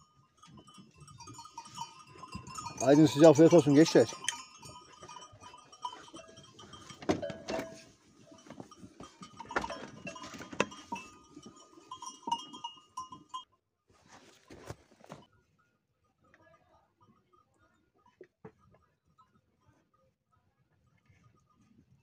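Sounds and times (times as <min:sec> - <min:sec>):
sheep bell tinkling: 0:00.0 - 0:13.5, 0:15.2 - 0:22.0
knocks and rustles: 0:00.5 - 0:12.5.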